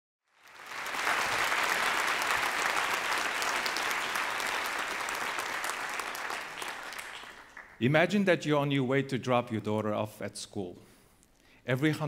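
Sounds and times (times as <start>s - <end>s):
audience applauding: 0.3s - 7.8s.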